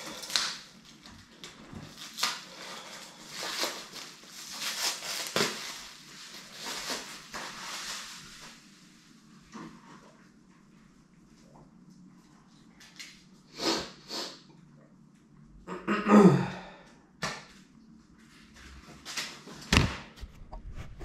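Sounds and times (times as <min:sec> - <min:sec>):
packaging crinkling: 0:00.0 - 0:08.6.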